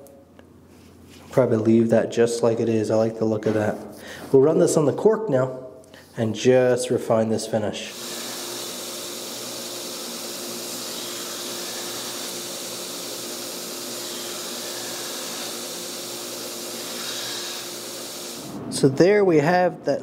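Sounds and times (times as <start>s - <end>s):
belt grinder whirring: 7.9s - 18.5s.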